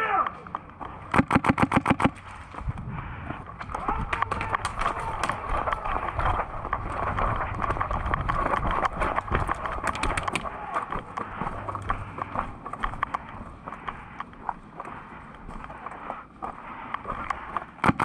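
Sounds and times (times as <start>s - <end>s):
running footsteps: 0.0s - 18.0s
sharp clicks and knocks: 3.5s - 16.2s, 16.9s - 18.0s.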